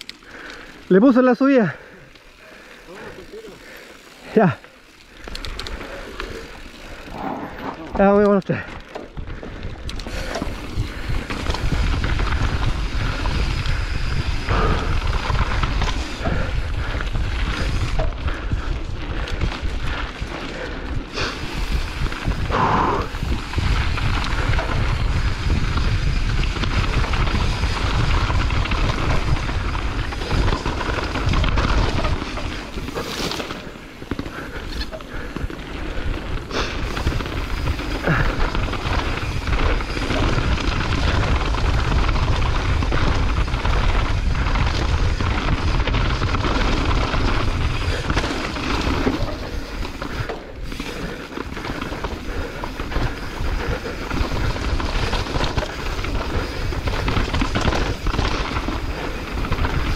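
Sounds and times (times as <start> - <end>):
wind on camera microphone: 21.4 - 32.3.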